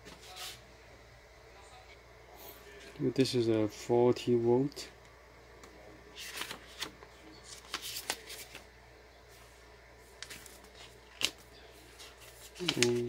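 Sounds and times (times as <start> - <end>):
paper leaflet rustling: 6.1 - 8.7, 10.1 - 13.0.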